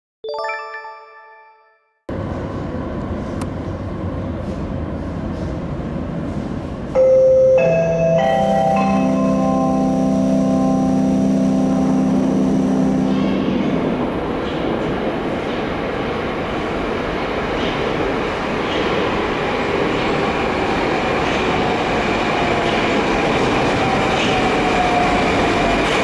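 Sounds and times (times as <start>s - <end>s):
metro train rumbling in tunnel: 2.1s - 26.0s
marimba-like jingle: 7.0s - 12.3s
electric whining tones: 8.8s - 14.2s.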